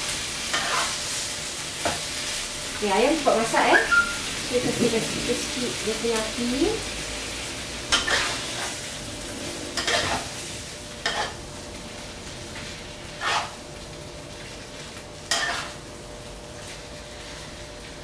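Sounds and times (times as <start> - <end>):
chicken sizzling in a frying pan: 0.0 - 18.0
scraping stir strokes in a pan: 0.3 - 2.4, 7.4 - 11.4, 13.0 - 13.6, 15.3 - 15.8.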